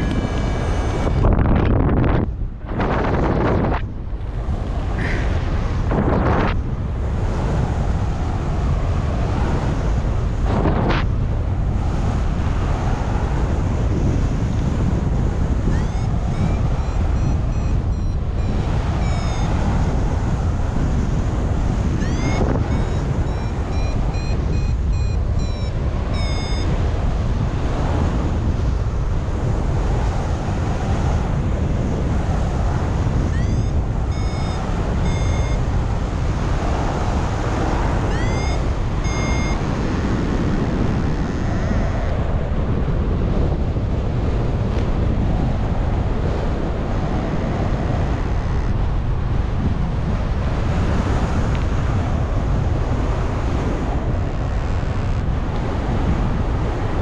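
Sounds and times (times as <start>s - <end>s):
wind rushing over microphone: 0.0s - 57.0s
variometer beeping and chirping: 15.5s - 20.6s, 21.8s - 26.9s, 33.0s - 40.4s, 41.0s - 42.1s.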